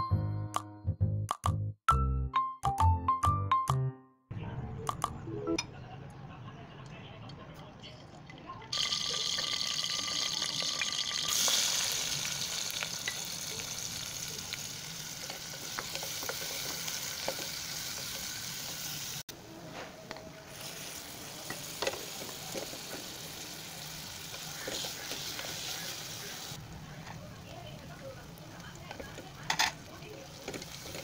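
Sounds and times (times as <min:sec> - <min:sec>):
onions sizzling in hot oil: 0:08.7 - 0:19.3, 0:20.4 - 0:31.0
spatula scraping and tapping pot: 0:15.3 - 0:18.9, 0:24.3 - 0:25.8.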